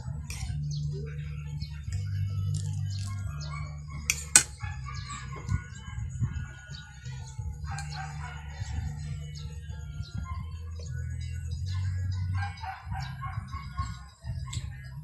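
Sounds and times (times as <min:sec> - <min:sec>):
rooster crowing: 0:07.7 - 0:09.4.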